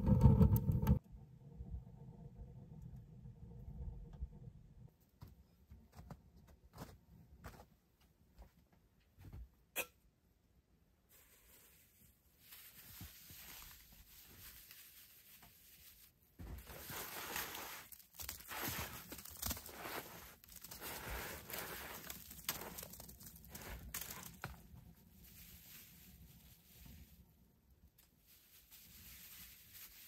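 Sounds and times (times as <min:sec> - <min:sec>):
dry rustling and crunching: 0:11.1 - 0:27.3, 0:27.9 - 0:30.0.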